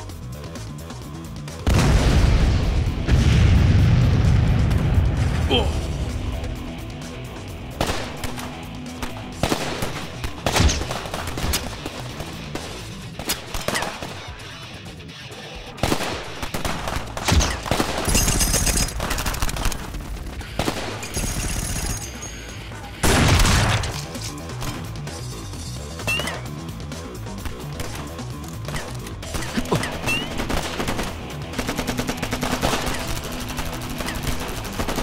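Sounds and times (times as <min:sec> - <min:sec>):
dramatic action music: 0:00.0 - 0:35.0
gunshots: 0:07.7 - 0:24.9, 0:27.4 - 0:35.0
automatic gunfire bursts: 0:28.7 - 0:35.0.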